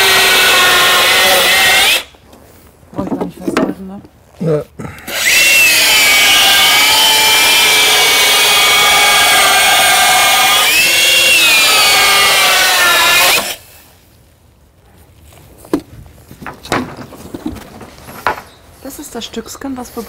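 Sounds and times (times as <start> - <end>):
circular saw cutting wood: 0.0 - 2.1, 5.1 - 13.6.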